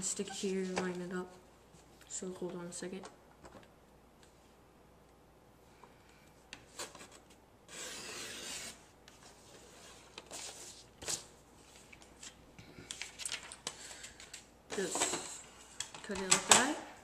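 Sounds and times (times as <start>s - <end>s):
paper rustling: 9.2s - 15.2s.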